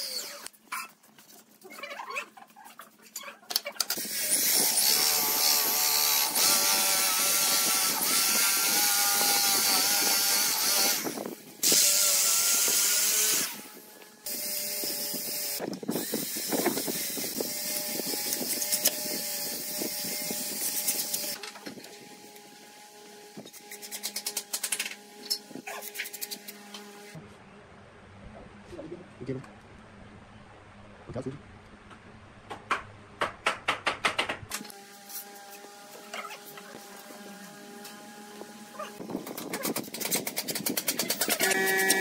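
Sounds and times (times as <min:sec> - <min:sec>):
electric drill whining: 0:00.0 - 0:00.5, 0:04.0 - 0:23.6, 0:41.3 - 0:42.0.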